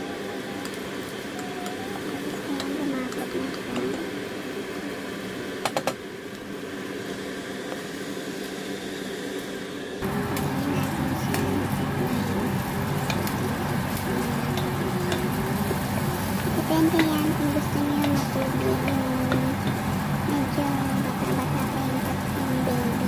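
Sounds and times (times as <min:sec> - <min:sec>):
steady low hum: 0:00.0 - 0:23.0
wooden spoon stirring in saucepan: 0:10.0 - 0:20.3.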